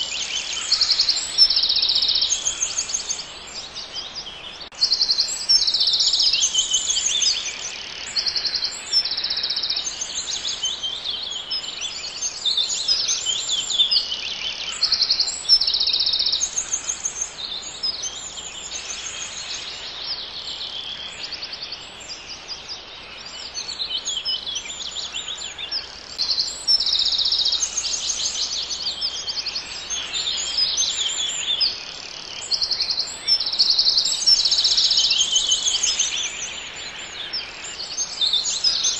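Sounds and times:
songbirds trilling and chirping: 0:00.0 - 0:38.9.

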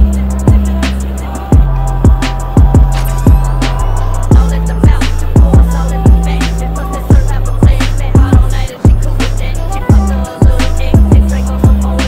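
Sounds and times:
kick drum beat: 0:00.0 - 0:00.7, 0:01.5 - 0:06.3, 0:07.1 - 0:09.0, 0:09.9 - 0:11.8
sustained bass line: 0:00.0 - 0:12.0.

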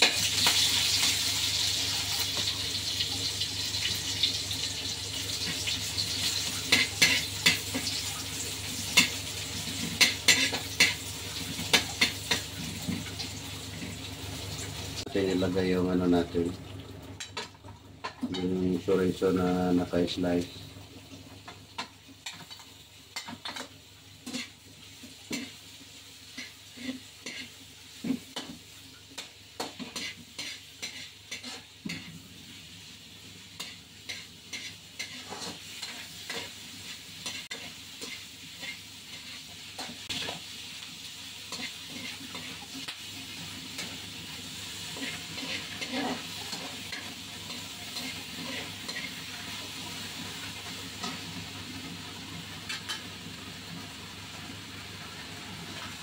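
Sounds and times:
food sizzling in oil: 0:00.0 - 0:56.0
metal ladle scraping a pan: 0:29.6 - 0:32.1, 0:33.6 - 0:36.5, 0:44.9 - 0:49.4.

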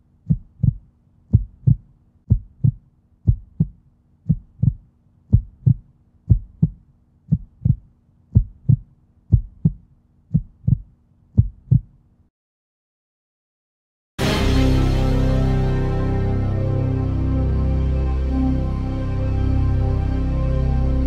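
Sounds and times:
heartbeat thumps: 0:00.2 - 0:12.0.

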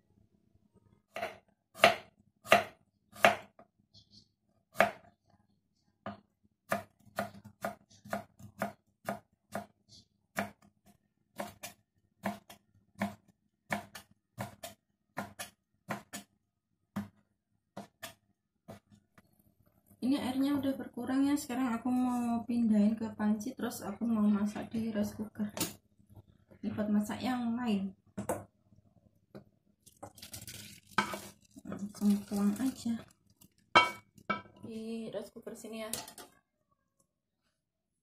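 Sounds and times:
knife chopping on wooden board: 0:01.1 - 0:03.6.

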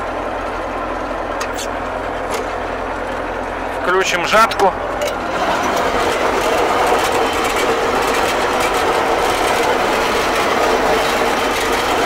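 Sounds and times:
mower engine running: 0:00.0 - 0:12.0.

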